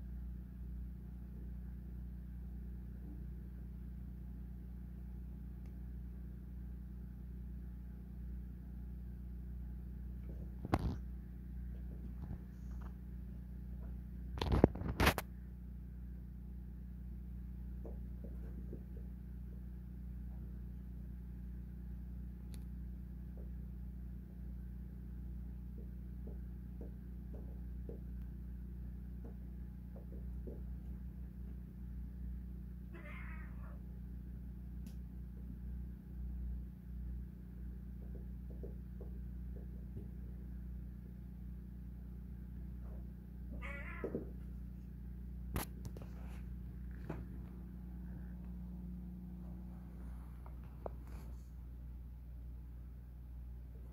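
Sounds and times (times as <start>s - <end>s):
steady low hum: 0.0s - 53.9s
cat crying: 32.9s - 33.8s, 43.5s - 44.3s.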